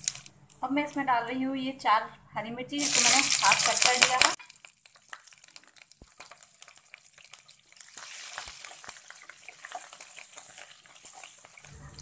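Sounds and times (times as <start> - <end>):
chillies sizzling in hot oil: 0.0 - 0.3, 2.7 - 12.0
spatula stirring: 2.8 - 12.0.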